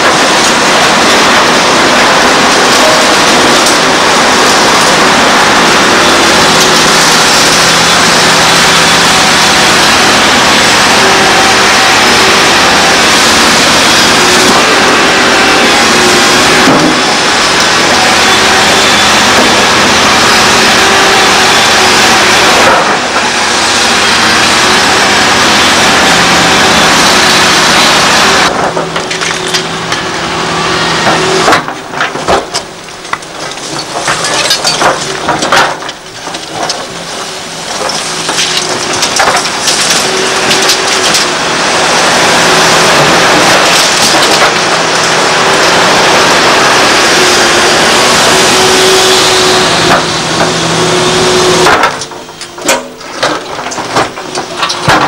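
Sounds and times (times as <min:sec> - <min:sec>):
excavator diesel engine running: 0:00.0 - 0:55.0
bucket scraping through rubble: 0:30.9 - 0:55.0.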